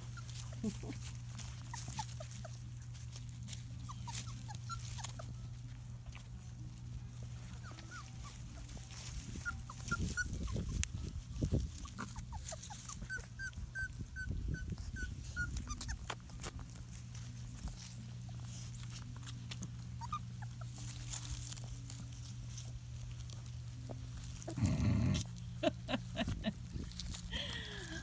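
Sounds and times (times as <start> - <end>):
puppies whimpering: 0.0 - 28.0.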